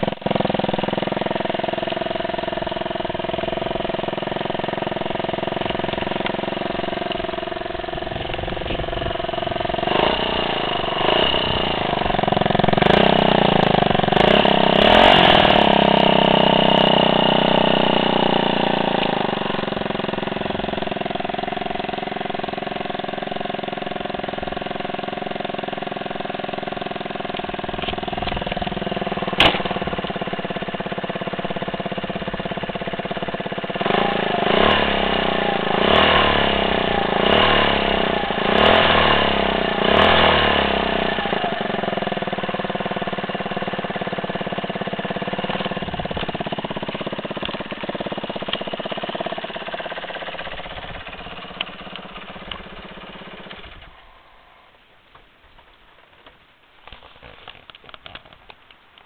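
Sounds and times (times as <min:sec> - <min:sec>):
scooter engine idling: 0:00.0 - 0:55.7
sharp click: 0:29.4 - 0:30.2.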